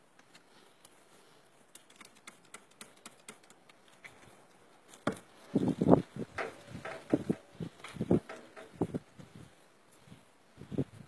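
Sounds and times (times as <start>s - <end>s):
louder muffled thuds: 5.0s - 9.0s.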